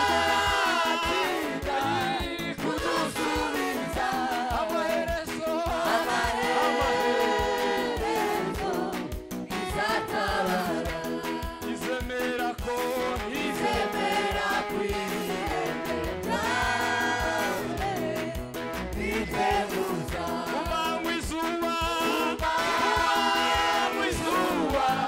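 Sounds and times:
band playing: 0.0s - 25.0s
group of singers singing: 0.0s - 25.0s
steady drum beat: 0.0s - 25.0s.

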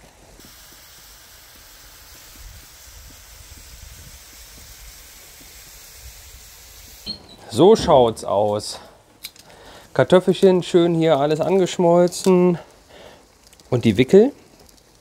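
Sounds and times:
gas grill hissing: 0.0s - 15.0s
light crackles: 0.0s - 15.0s
food simmering in a pan: 10.6s - 15.0s.

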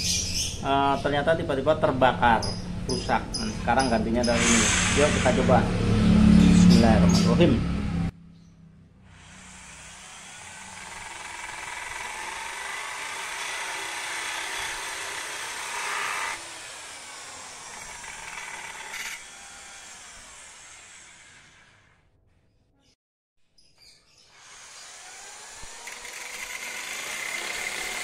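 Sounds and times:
cut-off disc grinding metal: 9.2s - 21.4s, 25.6s - 28.0s.

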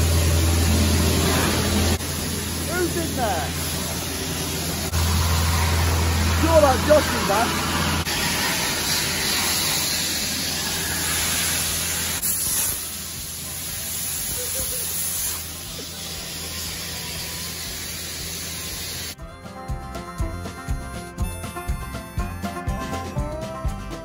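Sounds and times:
sandblasting nozzle hissing: 0.0s - 19.2s
background music: 19.2s - 24.0s.

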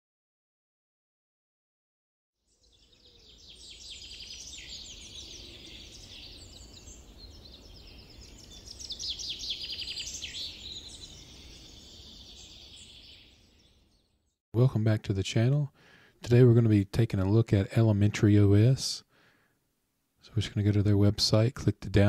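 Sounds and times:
birds chirping and trilling: 2.4s - 14.4s.

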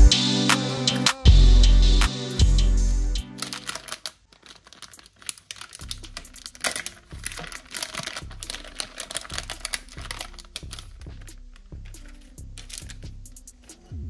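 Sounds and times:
plastic bag crinkling: 3.3s - 13.8s.

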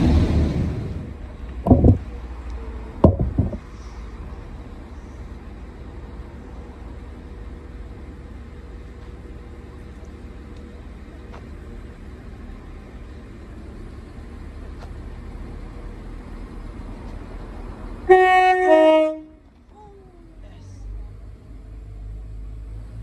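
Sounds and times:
low steady rumble: 0.0s - 23.0s
two-tone train horn: 18.1s - 19.4s.

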